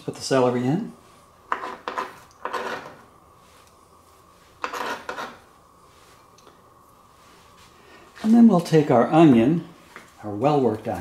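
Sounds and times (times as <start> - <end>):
knife scraping cutting board: 1.5 - 3.1, 4.5 - 5.5.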